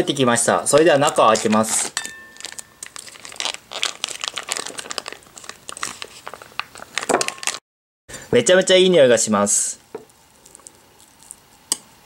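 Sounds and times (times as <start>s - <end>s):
foil pouch crinkling: 0.7s - 7.6s.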